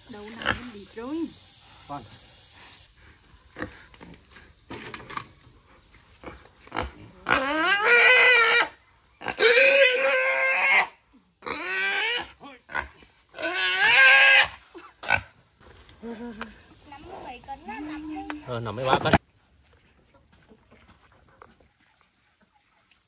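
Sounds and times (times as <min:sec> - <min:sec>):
wild boar squealing: 0:07.2 - 0:12.4, 0:13.3 - 0:14.6.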